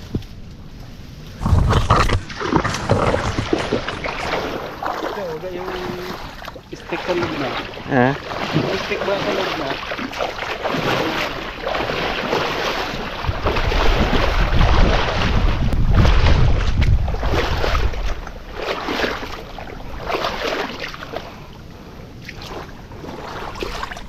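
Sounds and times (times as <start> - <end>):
wind rumble on microphone: 0.0 - 8.7, 10.0 - 24.0
water splashing and sloshing: 0.0 - 24.0.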